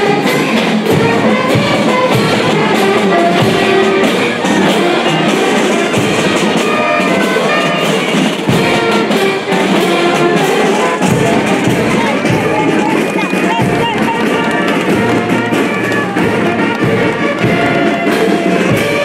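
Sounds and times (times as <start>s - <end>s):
music with drums: 0.0s - 19.0s.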